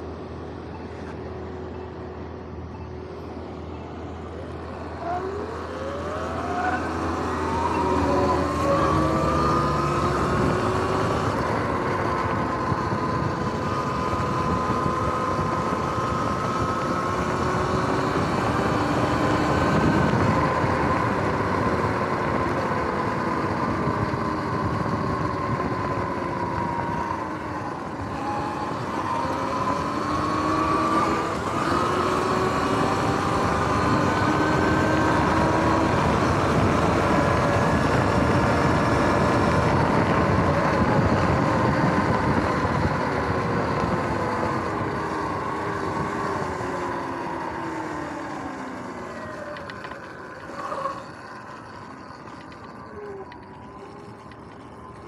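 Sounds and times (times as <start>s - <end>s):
electric motorbike motor whine: 0.0s - 55.0s
wind and road noise: 0.0s - 55.0s.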